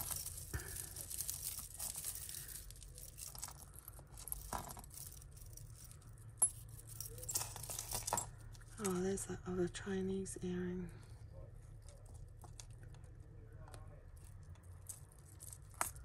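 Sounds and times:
beads and metal pieces clinking: 0.0 - 9.1, 14.2 - 16.0
rustling: 0.0 - 9.1.

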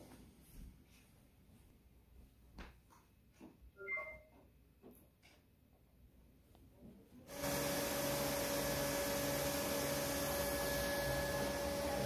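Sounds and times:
robot vacuum running: 7.3 - 12.0.

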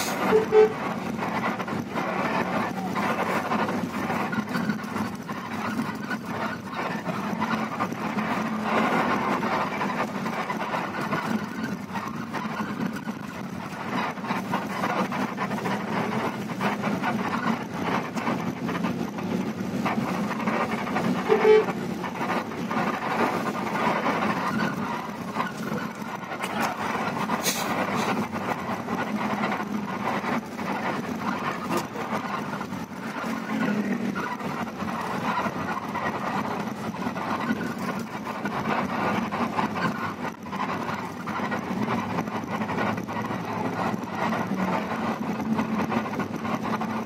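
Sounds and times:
body rattles and knocks: 0.0 - 47.0
bus engine running: 0.0 - 47.0
short horn toot: 0.2 - 0.8.

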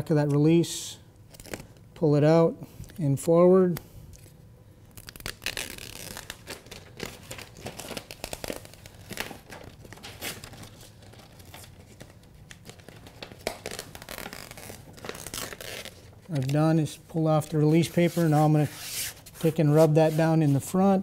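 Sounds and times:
backing paper crinkling as peeled: 5.0 - 20.8.

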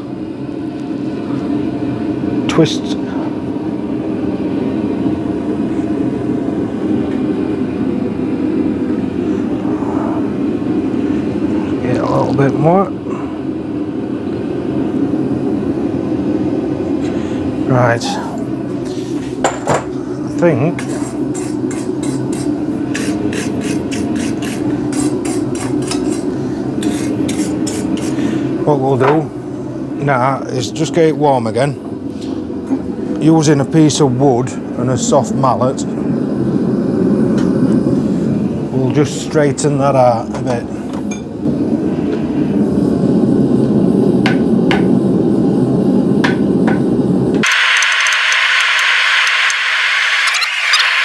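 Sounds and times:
low hum: 0.0 - 23.1, 24.6 - 51.0
forge burner roaring: 0.0 - 51.0
wire brush scrubbing steel: 20.8 - 28.2
steady hiss with fast ticking: 47.4 - 51.0.

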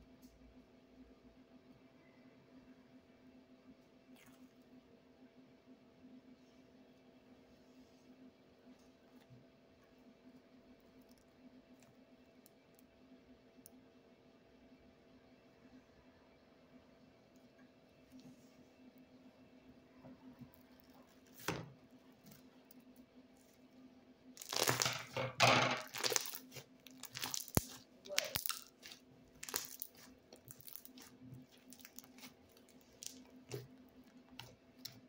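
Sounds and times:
slime squishing: 24.4 - 35.0.

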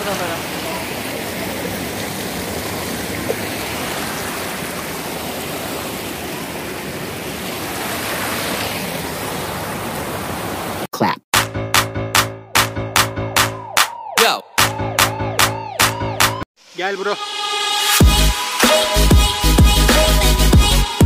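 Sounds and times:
water rushing in a roar: 0.0 - 10.9.

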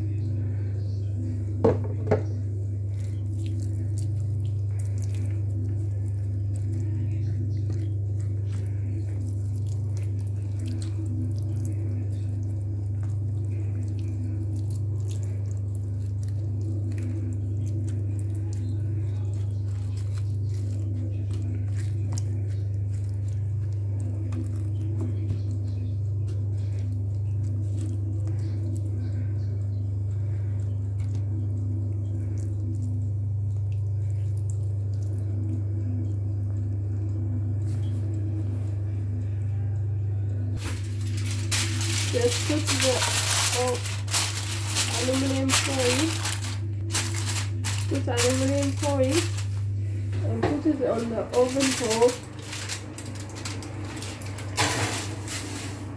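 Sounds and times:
steady low hum: 0.0 - 55.9
hands squishing raw chicken: 2.9 - 29.2.

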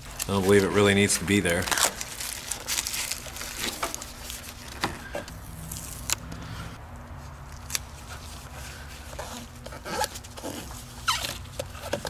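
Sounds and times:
plastic wrapping crinkling: 0.0 - 6.4.

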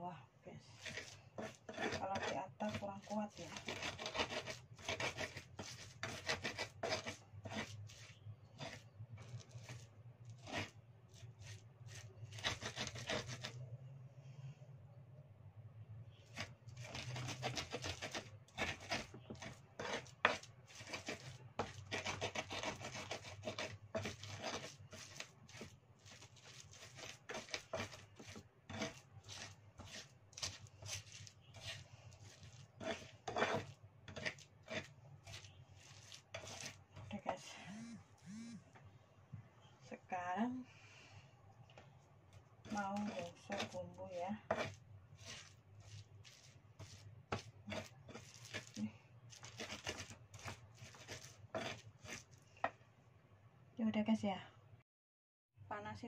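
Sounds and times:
pestle grinding on stone: 0.8 - 13.5, 16.2 - 37.5, 42.6 - 52.8.

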